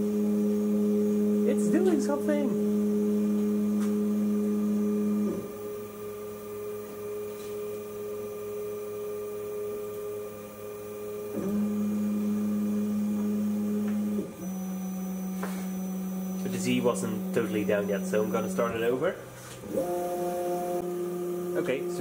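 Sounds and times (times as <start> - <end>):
stepper motors humming: 0.0 - 22.0.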